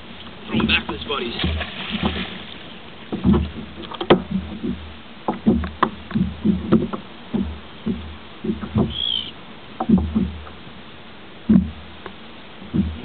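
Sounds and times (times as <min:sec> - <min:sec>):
knocks on plastic kayak hull: 0:03.1 - 0:09.0, 0:09.8 - 0:10.6, 0:11.4 - 0:11.8, 0:12.6 - 0:13.0.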